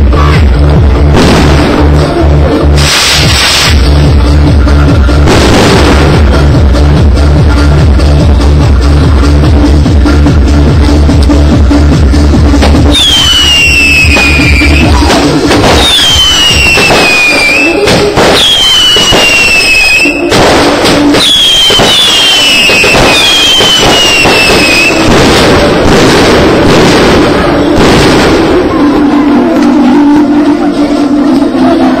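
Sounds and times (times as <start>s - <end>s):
electronic dance music: 0.0s - 32.0s
firework bursts and crackling: 0.4s - 30.1s
falling whistling tones: 12.9s - 15.0s, 15.8s - 17.8s, 18.4s - 20.3s, 21.2s - 25.1s.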